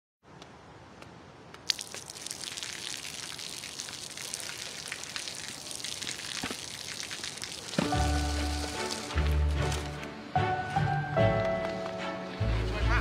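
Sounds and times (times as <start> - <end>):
water stream splashing: 0.9 - 10.3.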